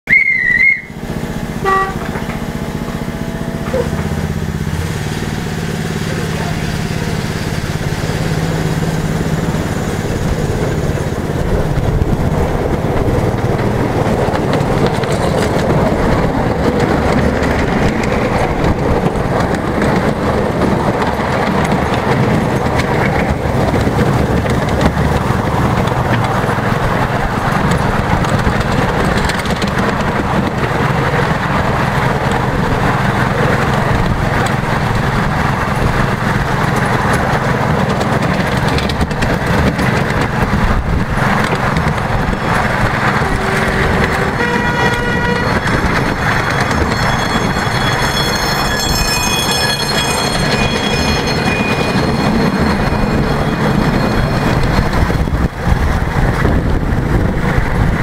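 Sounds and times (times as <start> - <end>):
miniature train toot: 0.1 - 2.4, 42.2 - 55.4
miniature train rumbling on track: 0.1 - 58.0.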